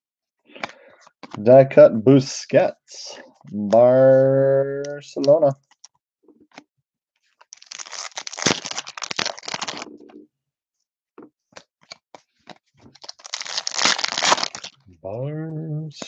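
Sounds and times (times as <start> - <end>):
plastic wrapper crinkling: 7.4 - 10.1, 11.5 - 14.8.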